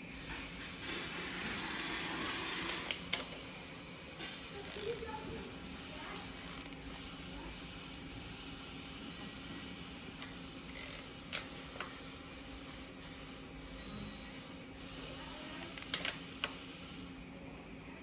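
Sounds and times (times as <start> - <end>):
torque wrench high beeps: 9.1 - 9.7, 13.8 - 14.4.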